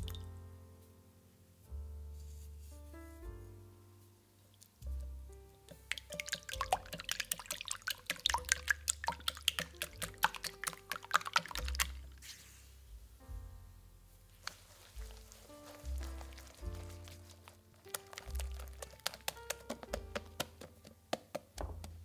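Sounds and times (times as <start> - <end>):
soft background music: 0.0 - 22.0
whisk clicking against glass bowl: 5.7 - 12.0, 17.9 - 22.0
sugar pouring hiss: 14.5 - 20.6.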